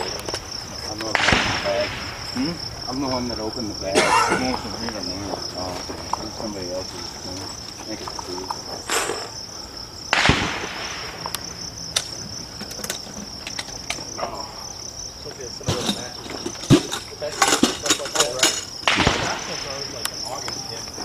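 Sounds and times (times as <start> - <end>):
sharp cracks: 0.0 - 2.5, 10.1 - 14.1, 16.6 - 21.0
high-pitched insect buzz: 6.7 - 10.1.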